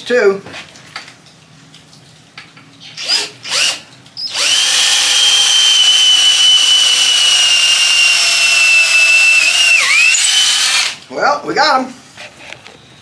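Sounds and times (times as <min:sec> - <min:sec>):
cordless drill boring into wood: 0:02.9 - 0:11.0.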